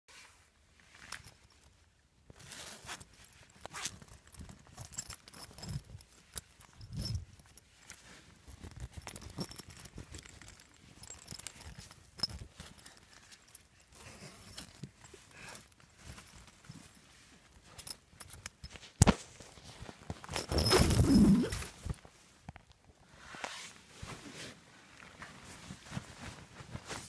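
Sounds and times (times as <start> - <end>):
tent fabric rustling: 18.7 - 22.4, 23.1 - 27.0
tent zipper opening: 20.3 - 21.9, 23.2 - 24.6.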